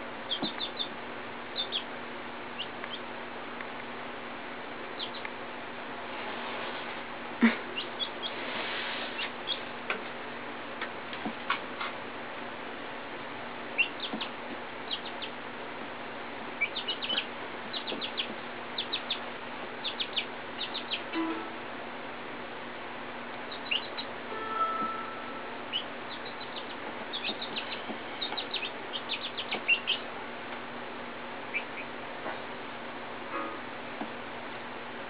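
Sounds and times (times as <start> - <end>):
chicks peeping: 0.2 - 3.1, 4.9 - 5.4, 7.4 - 9.8, 13.7 - 15.5, 16.4 - 21.2, 23.4 - 24.2, 25.6 - 30.2, 31.4 - 32.5.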